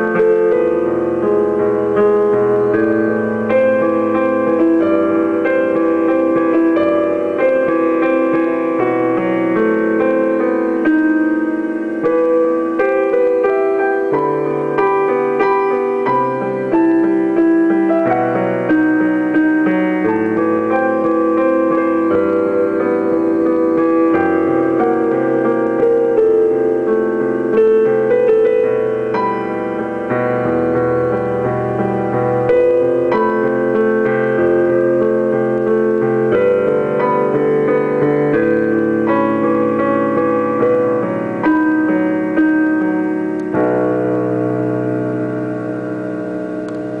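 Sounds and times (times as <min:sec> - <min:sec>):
digital piano playing: 0:00.0 - 0:47.0.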